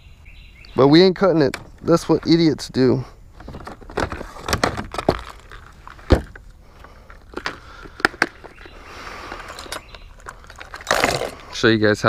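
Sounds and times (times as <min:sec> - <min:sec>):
plastic gear rustling: 0:03.4 - 0:11.6.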